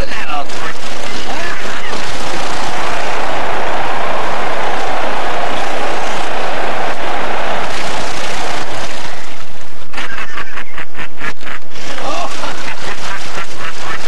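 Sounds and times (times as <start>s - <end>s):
water splashing in tank: 7.6s - 9.5s
man laughing: 9.9s - 14.0s.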